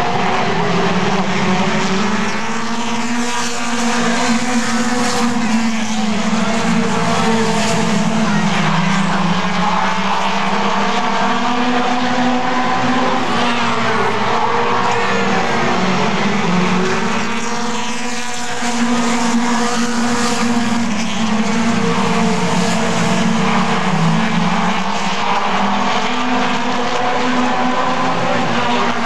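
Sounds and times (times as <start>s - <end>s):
racing car engines: 0.0s - 29.0s.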